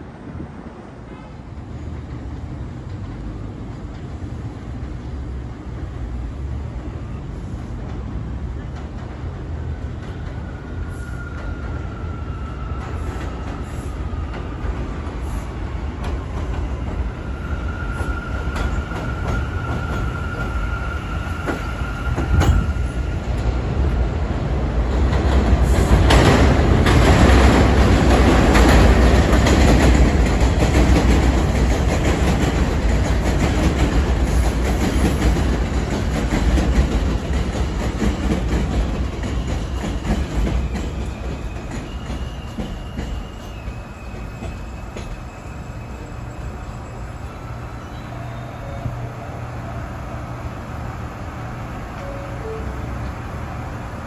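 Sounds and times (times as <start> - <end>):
train wheels clattering over rail joints: 24.9 - 45.2.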